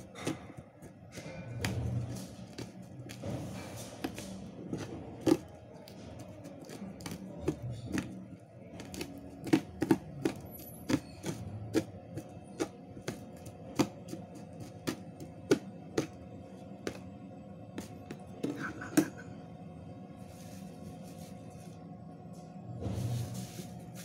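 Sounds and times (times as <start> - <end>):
knife slicing chillies: 0.0 - 16.1.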